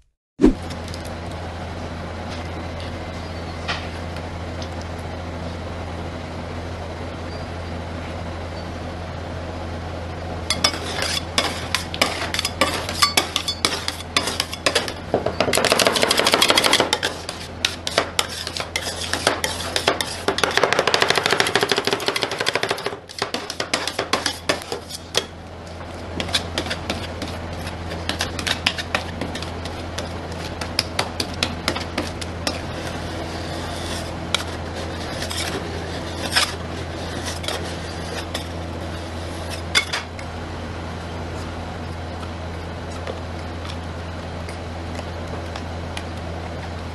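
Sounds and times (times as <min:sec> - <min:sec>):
steady low hum: 0:00.0 - 0:46.9
spatulas scraping steel plate: 0:10.5 - 0:25.3, 0:26.2 - 0:40.1.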